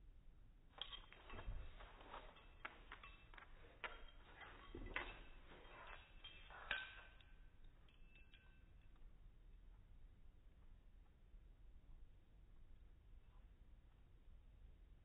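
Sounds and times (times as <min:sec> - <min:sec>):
dog claws tapping on hardwood floor: 0:00.8 - 0:08.2.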